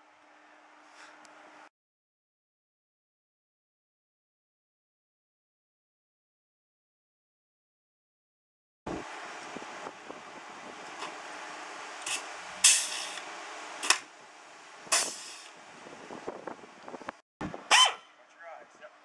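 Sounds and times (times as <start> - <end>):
rivet gun air hisses: 12.1 - 13.2, 14.9 - 15.6.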